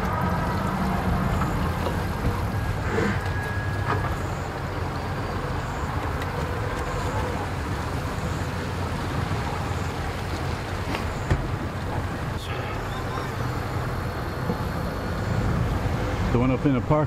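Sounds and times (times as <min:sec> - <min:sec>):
idling engines rumbling: 0:00.0 - 0:17.0
thin whistle-like tone: 0:02.6 - 0:04.6.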